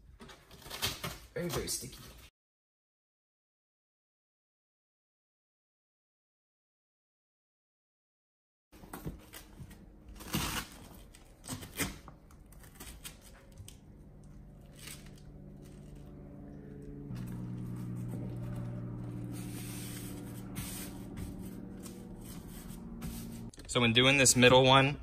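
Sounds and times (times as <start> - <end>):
steady low hum: 12.1 - 25.0
hook-and-loop ripping: 14.6 - 23.5.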